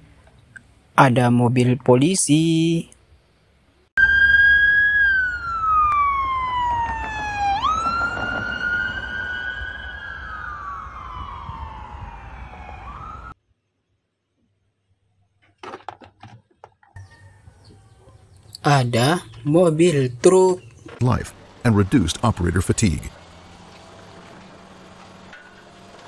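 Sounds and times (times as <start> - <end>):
police siren wailing: 4.0 - 13.4.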